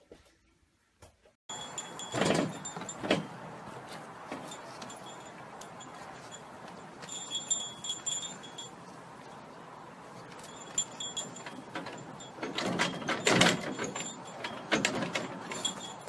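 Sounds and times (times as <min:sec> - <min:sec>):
small bell tinkling: 0:01.5 - 0:03.0, 0:04.4 - 0:08.9, 0:10.4 - 0:12.5, 0:15.5 - 0:16.0.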